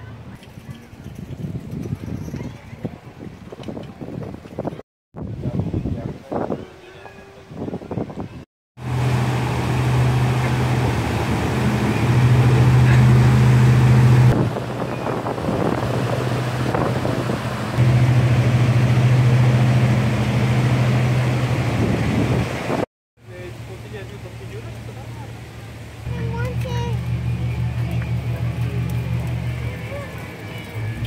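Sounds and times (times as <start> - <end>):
river water pouring over weir: 8.8 - 20.9
low engine hum: 8.8 - 31.0.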